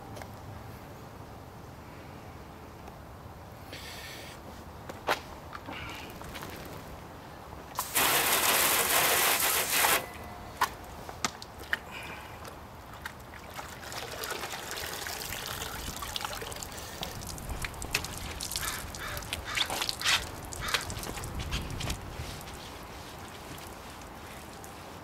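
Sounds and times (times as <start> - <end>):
water spraying onto car body: 7.8 - 10.1
water trickling and dripping: 11.3 - 24.8.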